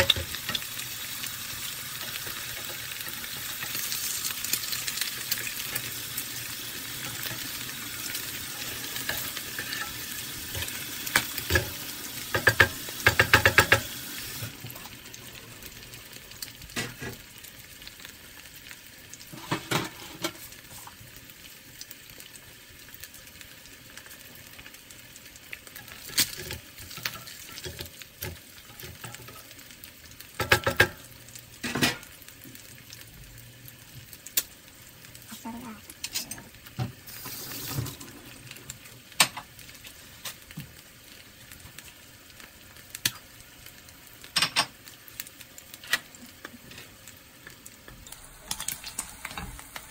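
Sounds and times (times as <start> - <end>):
eggs sizzling in frying pan: 0.0 - 49.9
spatula scraping pan: 5.0 - 13.9.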